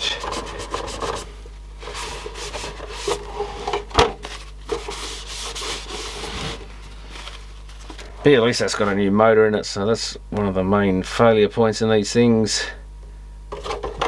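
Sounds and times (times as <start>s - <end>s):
tissue rubbing on metal: 0.0s - 3.5s, 4.2s - 7.8s.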